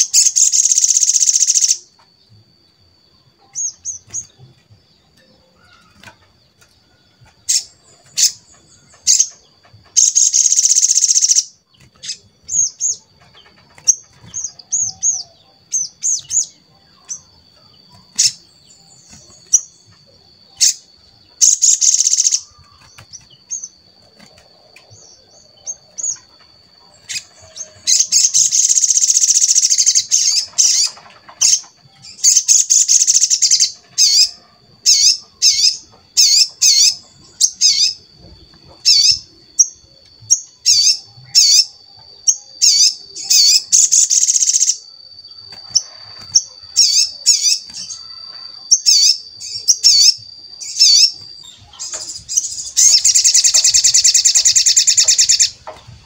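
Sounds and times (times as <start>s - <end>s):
faint steady high tone: 0.0s - 30.3s
sunbird twittering and chirping: 0.0s - 56.0s.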